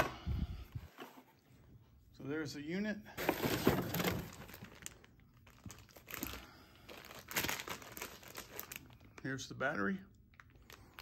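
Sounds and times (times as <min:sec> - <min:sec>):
cardboard rustling and scraping: 0:00.8 - 0:01.6, 0:03.2 - 0:04.7
plastic bag crinkling: 0:03.2 - 0:11.0.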